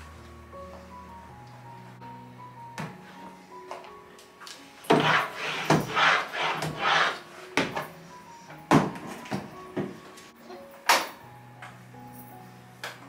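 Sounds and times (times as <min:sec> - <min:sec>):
soft background music: 0:00.0 - 0:13.0
noisy strokes: 0:04.9 - 0:07.6.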